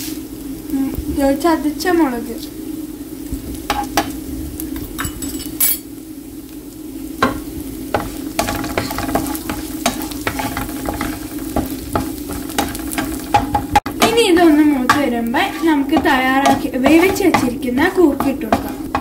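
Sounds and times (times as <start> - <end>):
food sizzling in oil: 0.0 - 19.0
wooden spatula scraping pan: 7.9 - 19.0.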